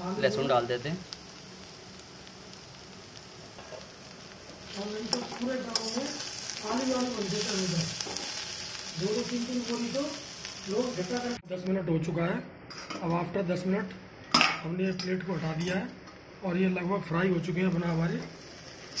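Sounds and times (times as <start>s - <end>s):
vegetables sizzling in oil: 0.0s - 11.4s, 17.5s - 19.0s
person speaking: 4.7s - 8.0s, 9.0s - 12.4s
spatula stirring: 4.7s - 8.4s.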